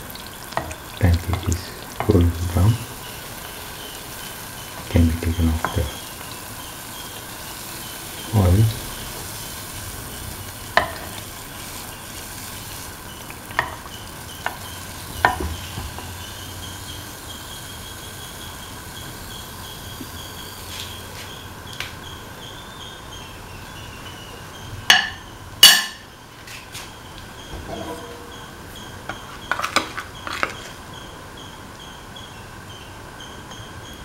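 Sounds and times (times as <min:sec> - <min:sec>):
pancake sizzling in oil: 0:00.0 - 0:23.0
metal spoon knocking pan: 0:13.5 - 0:16.2, 0:24.9 - 0:26.1.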